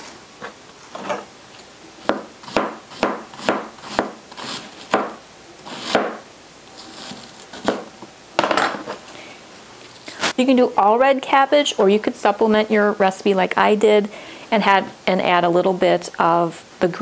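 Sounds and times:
knife crunching through cabbage: 6.8 - 7.8.

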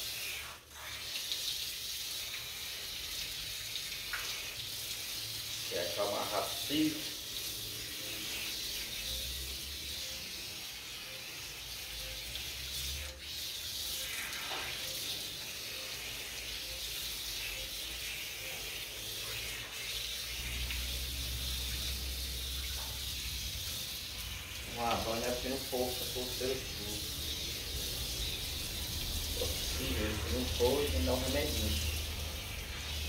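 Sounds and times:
hose water splashing on concrete: 0.0 - 33.0.

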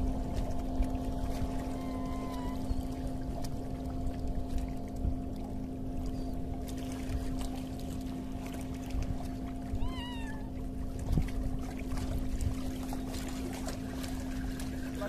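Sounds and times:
low wind rumble: 0.0 - 15.0
steady low hum: 0.0 - 15.0
water lapping against rocks: 0.0 - 15.0
meow-like animal call: 1.6 - 2.8, 9.7 - 10.5.

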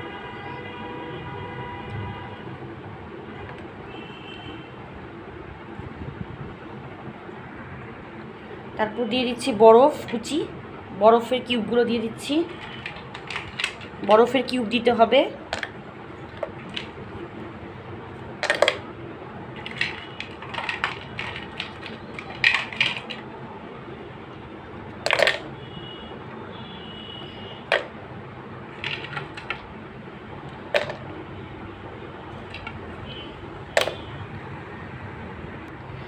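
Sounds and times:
ice cubes clinking into blender jar: 19.6 - 23.2, 25.1 - 25.5.

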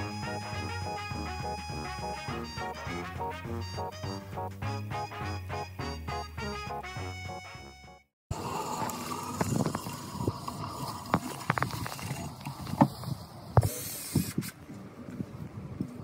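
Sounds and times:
outdoor background noise: 8.3 - 16.0.

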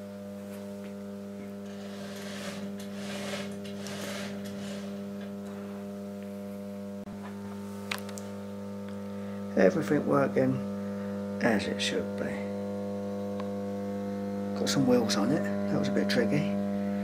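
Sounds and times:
transformer mains hum: 0.0 - 17.0.

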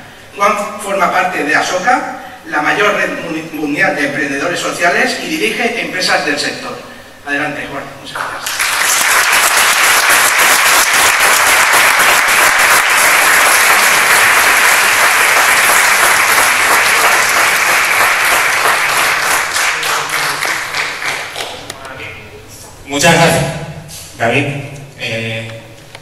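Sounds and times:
audience applauding: 8.4 - 21.8.

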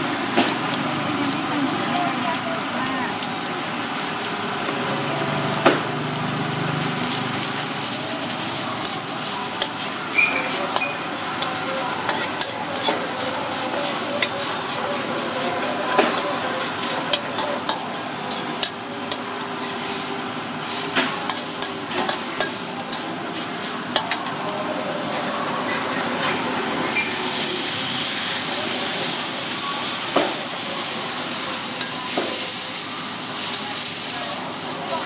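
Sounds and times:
meat sizzling in oil: 0.0 - 35.0
metal spatula scraping a wok: 8.4 - 15.1
steam hissing: 26.4 - 35.0.

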